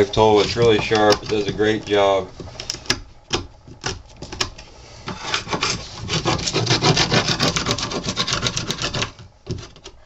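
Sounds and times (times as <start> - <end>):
steel tool scraping wood: 0.0 - 2.8, 5.0 - 9.9.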